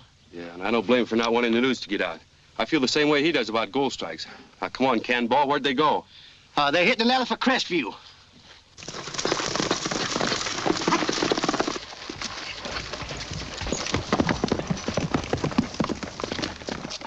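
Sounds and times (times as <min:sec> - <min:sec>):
horses galloping hoofbeats: 0:08.8 - 0:17.0.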